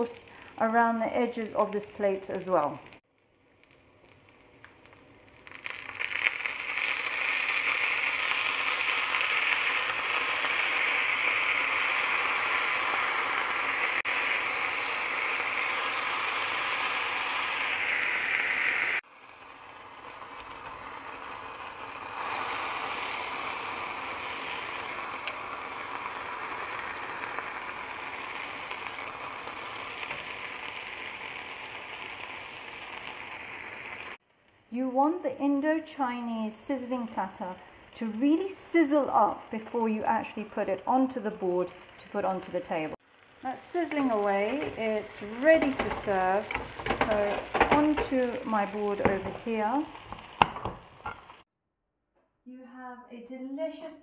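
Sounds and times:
food sizzling on hot plate: 1.2s - 34.2s, 36.8s - 51.5s.

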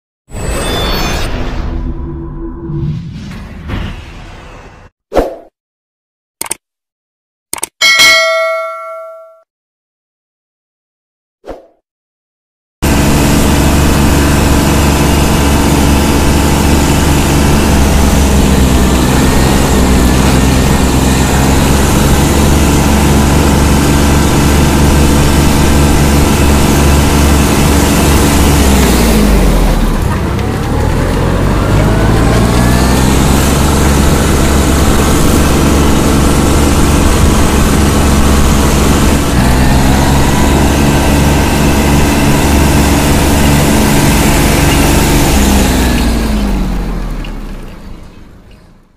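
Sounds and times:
tractor diesel engine revving: 12.8s - 47.6s.

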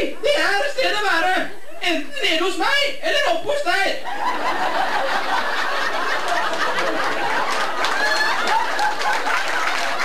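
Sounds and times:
audience laughing: 4.0s - 10.0s
scattered clapping: 6.0s - 10.0s.

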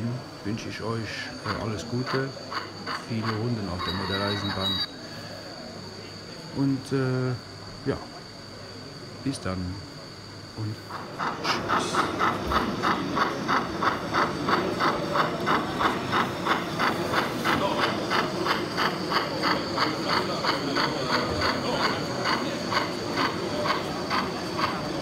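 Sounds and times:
steam hiss: 10.3s - 21.2s
model train steam chuffs: 10.6s - 25.0s.

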